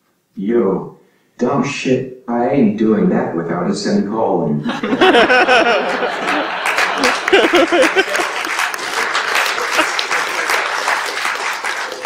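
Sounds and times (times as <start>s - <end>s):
audience laughing: 4.6s - 12.0s
audience applause: 4.7s - 12.0s.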